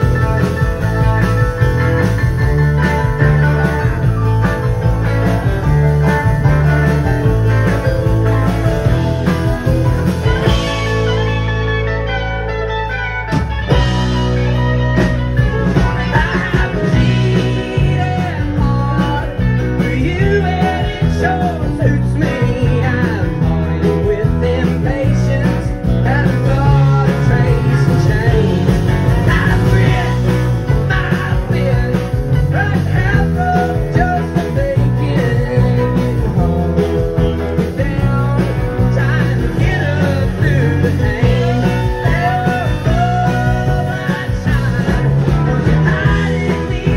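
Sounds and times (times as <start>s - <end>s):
country-rock band playing: 0.0s - 46.9s.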